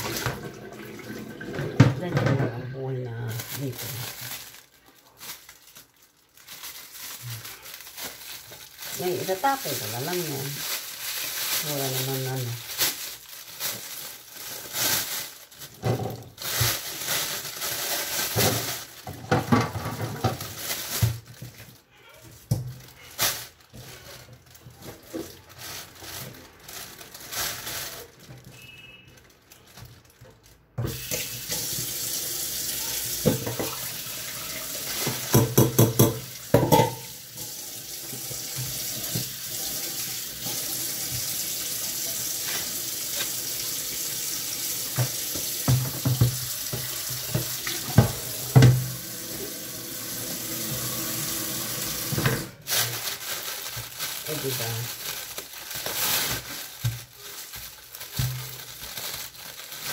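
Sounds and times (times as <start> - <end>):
plastic bag rustling: 0.0 - 59.9
tap running into a sink: 44.7 - 49.4.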